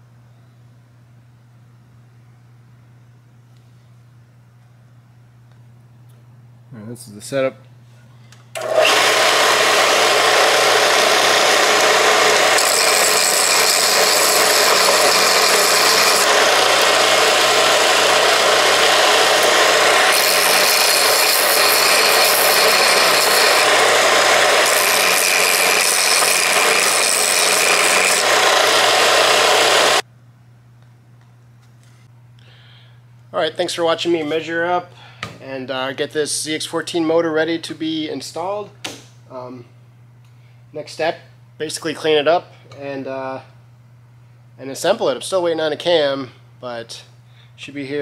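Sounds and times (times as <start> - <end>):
belt sander running: 8.6 - 30.0
metal grinding on sanding belt: 8.6 - 30.0.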